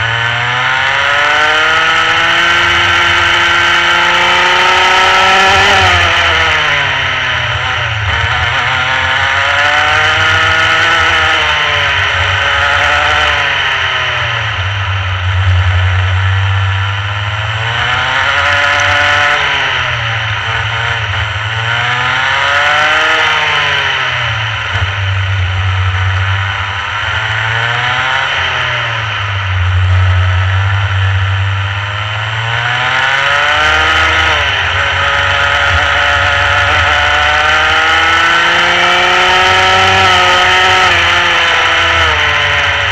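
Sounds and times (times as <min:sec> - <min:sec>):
kart engine running hard: 0:00.0 - 0:42.9.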